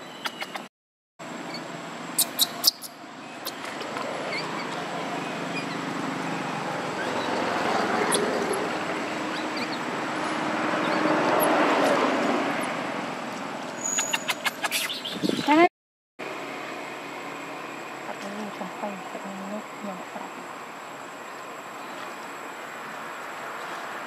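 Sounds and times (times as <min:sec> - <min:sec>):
rushing outdoor noise: 0:00.0 - 0:24.0.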